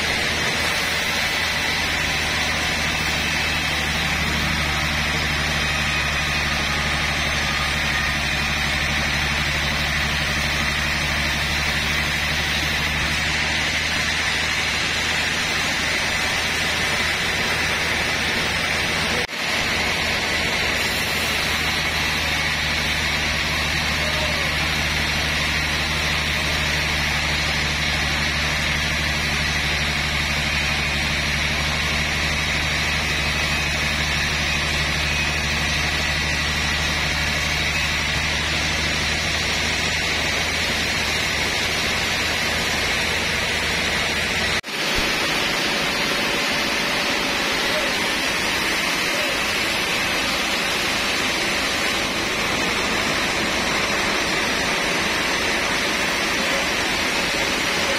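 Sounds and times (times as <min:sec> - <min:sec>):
band sawmill machine hum: 0:00.0 - 0:57.9
saw blade hissing through log: 0:20.6 - 0:39.8.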